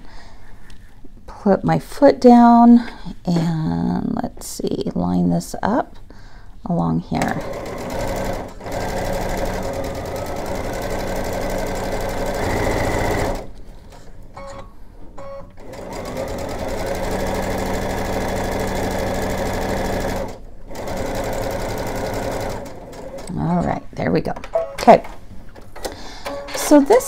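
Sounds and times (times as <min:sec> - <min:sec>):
sewing machine stitching: 0:07.2 - 0:13.5, 0:15.6 - 0:23.5.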